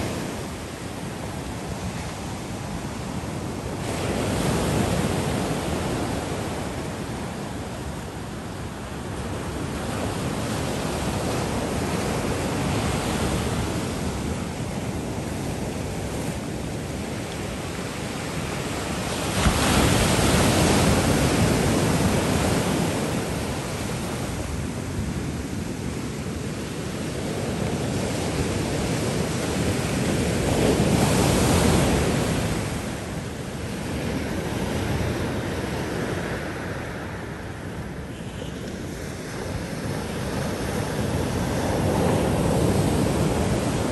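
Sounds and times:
waves breaking on rocks: 15.6 - 24.3.

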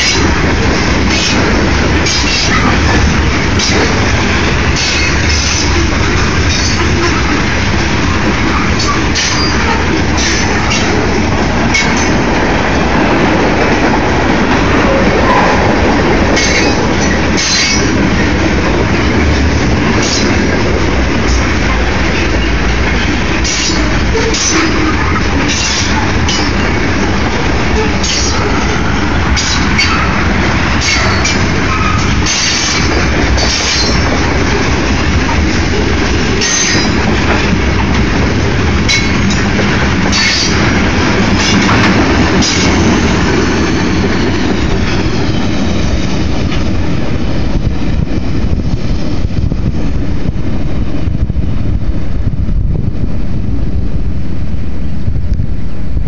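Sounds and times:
wheels clacking over rail joints: 0.0 - 48.2
train wheels rumbling on rail: 0.0 - 56.0
wheel squeal: 8.5 - 10.9.

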